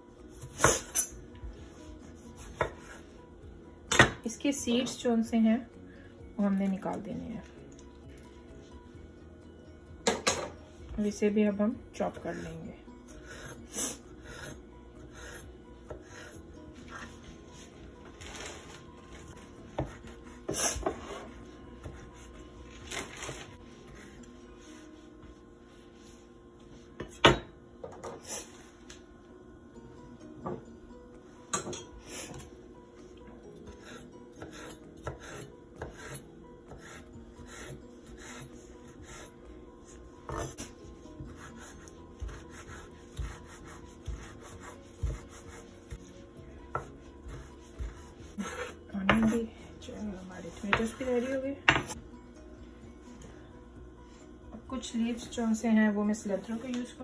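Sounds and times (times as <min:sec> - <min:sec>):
knife chopping on cutting board: 0:02.4 - 0:02.9, 0:34.4 - 0:38.5, 0:41.2 - 0:46.0, 0:46.7 - 0:49.4.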